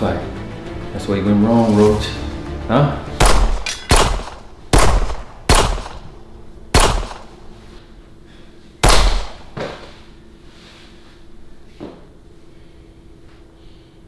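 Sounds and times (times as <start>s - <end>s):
pistol shots: 3.2s - 6.1s, 6.7s - 7.4s, 8.8s - 9.5s.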